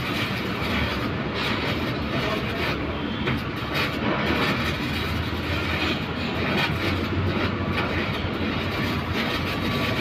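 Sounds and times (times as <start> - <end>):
welding arc crackling and hissing: 0.0 - 10.0.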